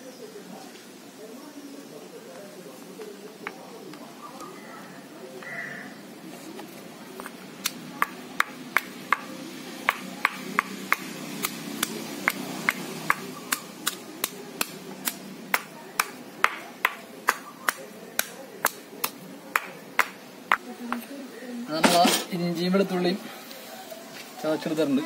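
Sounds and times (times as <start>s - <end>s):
pestle pounding in stone mortar: 8.0s - 20.6s.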